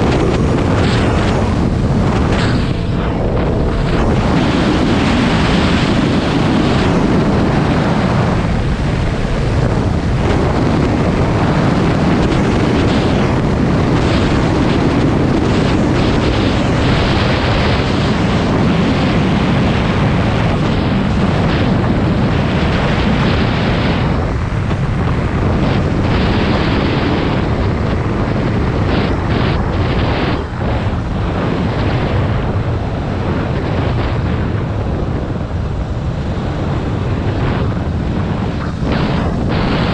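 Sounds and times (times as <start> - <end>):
motorcycle engine running: 0.0 - 14.7
wind rushing over microphone: 0.0 - 39.9.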